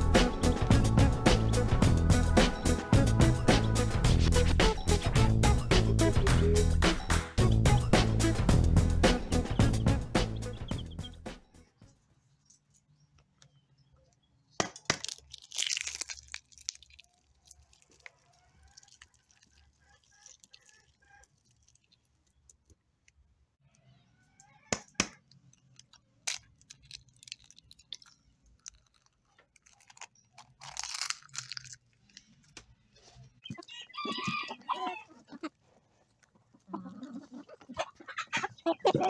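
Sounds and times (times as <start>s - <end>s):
eggs cracking against a bowl: 14.6s - 23.2s, 24.7s - 32.2s
crunching rustles of dry mix: 15.0s - 23.3s, 25.2s - 33.4s, 35.1s - 37.7s.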